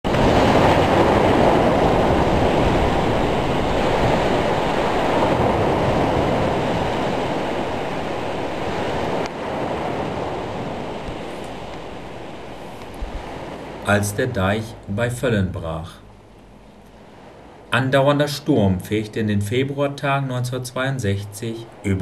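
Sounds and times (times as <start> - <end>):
waves breaking: 0.0 - 22.0
wind: 0.0 - 22.0.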